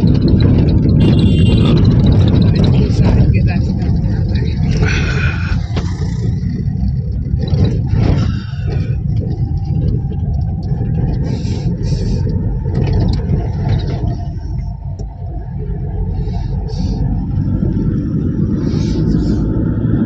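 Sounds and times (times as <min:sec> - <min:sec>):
car engine and road noise: 0:00.0 - 0:20.0.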